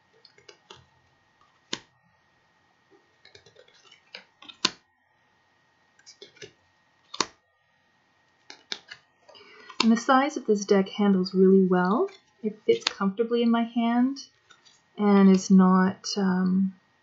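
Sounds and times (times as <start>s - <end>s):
card snapping: 1.6s - 1.9s, 3.2s - 4.8s, 6.0s - 7.4s, 8.4s - 9.0s
cards sliding off a deck: 8.4s - 9.0s.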